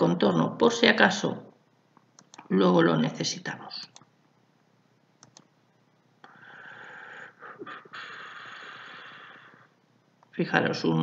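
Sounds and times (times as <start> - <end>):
faint clicks: 5.2 - 5.5
person breathing out noisily: 6.3 - 9.8.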